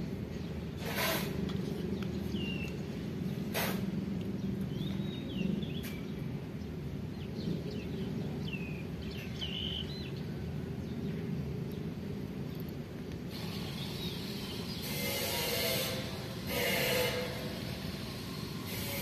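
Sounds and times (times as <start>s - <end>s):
small birds chirping: 1.6s - 3.6s, 4.2s - 12.7s, 13.4s - 15.0s.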